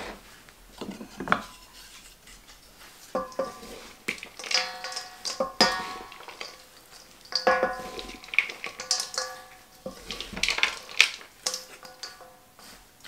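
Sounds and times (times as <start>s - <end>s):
salad leaves rustling: 0.0s - 13.0s
wood knocking on metal bowl: 3.2s - 6.6s, 7.3s - 10.9s.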